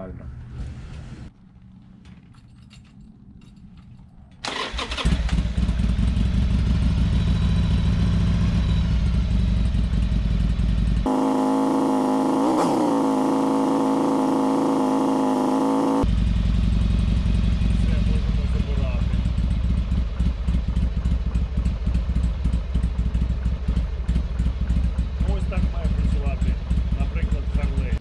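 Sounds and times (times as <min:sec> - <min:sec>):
electric starter cranking: 0:04.4 - 0:05.4, 0:11.1 - 0:16.0
motorcycle engine idling: 0:05.3 - 0:28.0.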